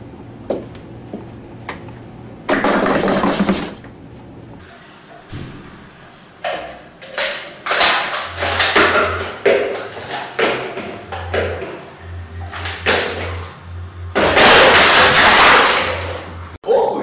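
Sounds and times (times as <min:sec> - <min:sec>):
plastic cups clacking on table: 0:06.4 - 0:13.5.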